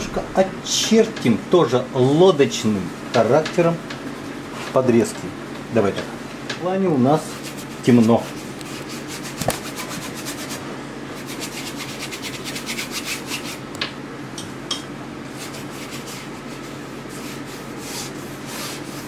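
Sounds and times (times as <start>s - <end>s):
brush scraping paint on canvas: 4.0s - 4.8s, 7.2s - 10.6s, 15.3s - 19.0s.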